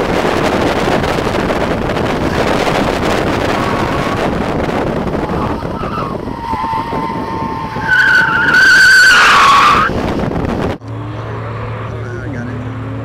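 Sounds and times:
car engine drone: 0.0 - 13.0
wind and road rush: 0.0 - 13.0
tyres squealing: 5.2 - 9.9.

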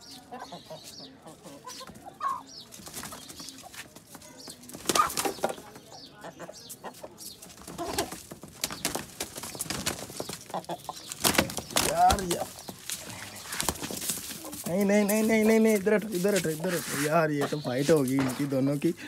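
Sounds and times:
chickens clucking: 0.0 - 19.0
chicken wings flapping: 2.7 - 5.6, 7.2 - 15.2.

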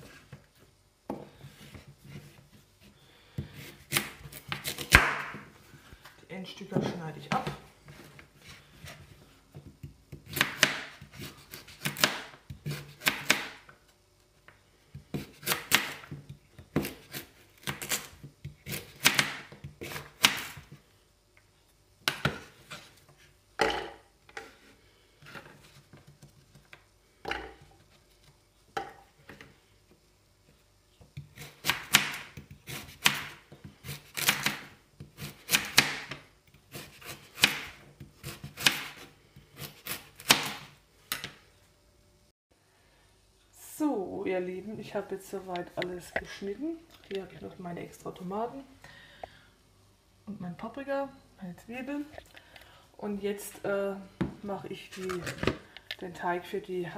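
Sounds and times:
knife slicing carrots on board: 9.8 - 13.6, 15.1 - 20.7, 31.2 - 41.2.

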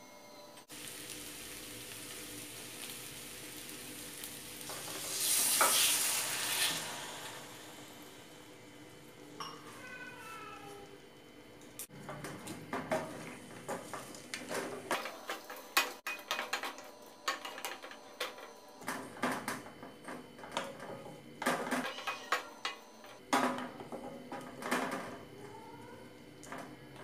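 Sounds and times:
spatula scraping and knocking a pan: 12.0 - 25.1.

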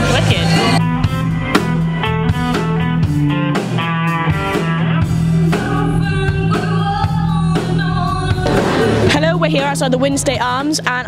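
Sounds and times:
guitar notes: 0.0 - 6.1
bass line: 0.0 - 11.0
drum kit: 0.0 - 11.0
person singing: 5.5 - 9.2.

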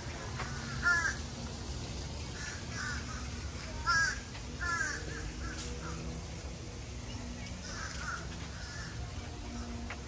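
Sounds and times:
crows cawing: 0.4 - 1.3, 2.3 - 6.3, 7.6 - 10.0.

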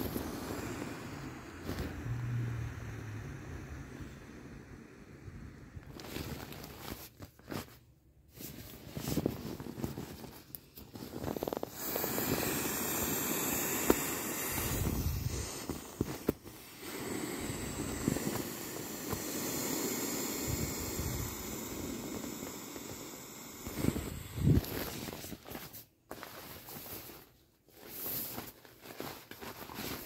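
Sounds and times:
air hissing out of valve: 0.0 - 5.8, 11.5 - 25.2
vinyl rustling and rubbing: 5.8 - 12.6, 13.5 - 16.8, 23.6 - 30.0.

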